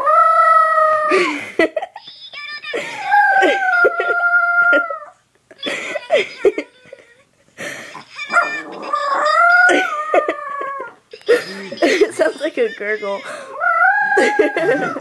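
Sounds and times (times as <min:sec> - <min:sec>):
dog making gurgling howls: 0:08.3 - 0:11.0, 0:13.5 - 0:15.0.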